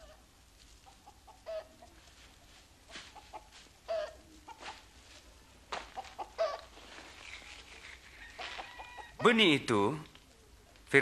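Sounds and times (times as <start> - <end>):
chicken clucking: 0.8 - 5.0, 5.8 - 9.4.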